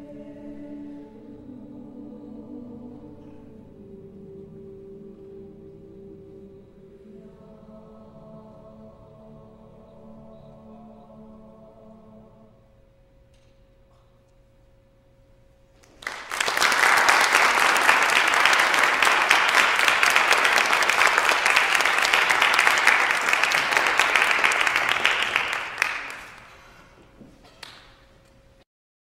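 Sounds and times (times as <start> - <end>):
audience applause: 15.8 - 26.9.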